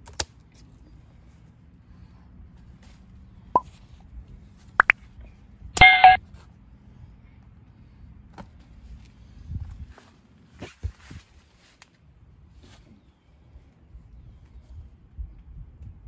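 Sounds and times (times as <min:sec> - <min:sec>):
chiming notification ding: 0:05.8 - 0:06.2.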